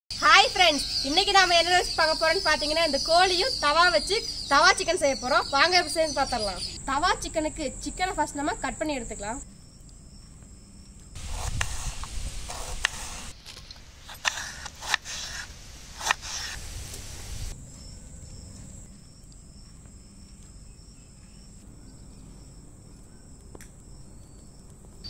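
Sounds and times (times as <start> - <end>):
insects chirping: 0.1 - 25.0
knife slicing onion on board: 11.2 - 13.3, 14.1 - 16.6.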